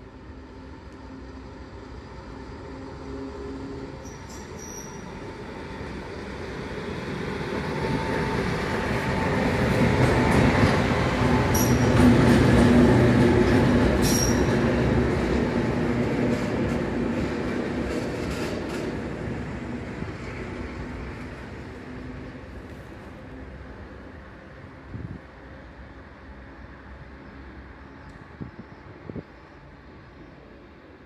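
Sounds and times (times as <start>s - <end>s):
diesel locomotive passing: 0.0s - 31.0s
wheel squeals: 4.0s - 5.2s, 11.5s - 12.1s, 14.0s - 14.6s.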